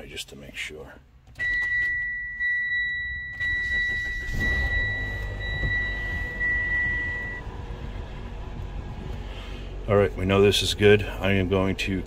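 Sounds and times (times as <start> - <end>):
car engine cranking and idling: 1.1 - 12.0
high electronic tone: 2.9 - 7.5.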